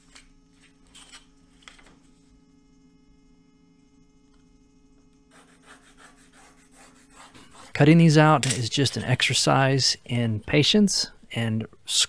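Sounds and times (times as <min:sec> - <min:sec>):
faint electrical hum: 0:00.0 - 0:12.0
pencil scratching along straight edge: 0:05.3 - 0:07.8.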